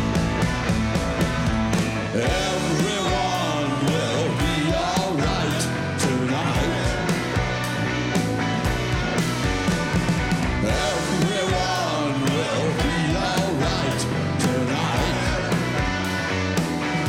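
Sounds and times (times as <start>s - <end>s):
bass guitar: 0.0s - 17.0s
drum kit: 0.0s - 17.0s
electric guitars: 0.0s - 17.0s
person singing: 2.2s - 7.3s, 10.6s - 15.8s.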